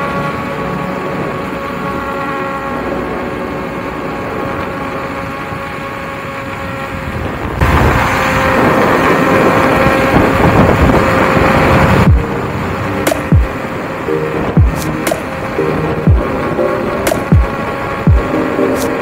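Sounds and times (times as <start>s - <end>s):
steady motor whine: 0.0s - 19.0s
wind rush and road noise: 0.0s - 19.0s
wind buffeting microphone: 4.1s - 18.4s.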